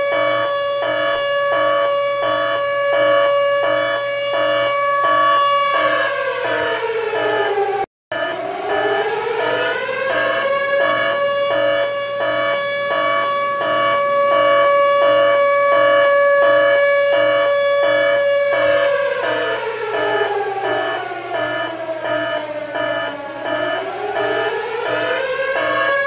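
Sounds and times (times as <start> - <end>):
alarm siren winding: 0.0 - 26.0
pulsing beep: 5.1 - 13.8, 18.6 - 25.9.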